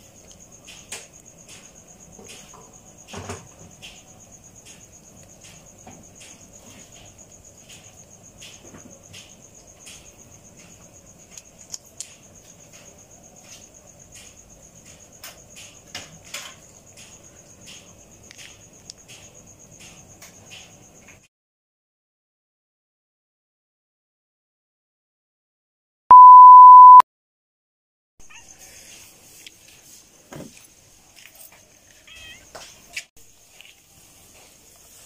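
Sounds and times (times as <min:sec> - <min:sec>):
cricket chirping trill: 0:00.0 - 0:21.2.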